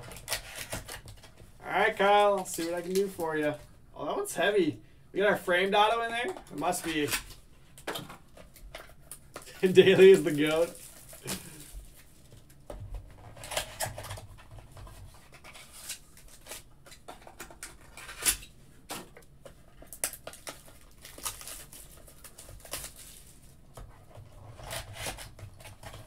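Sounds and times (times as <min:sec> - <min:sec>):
cards and cardboard box handled: 0:06.2 - 0:18.4.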